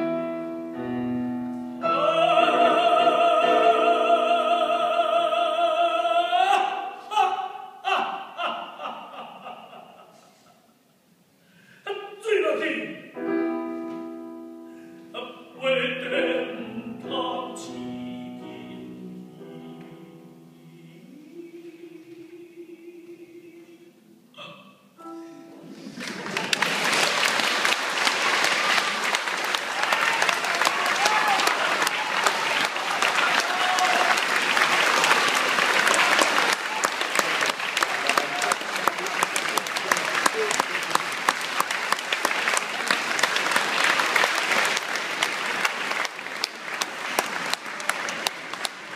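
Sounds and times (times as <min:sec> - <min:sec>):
audience applause: 0:25.7 - 0:48.9.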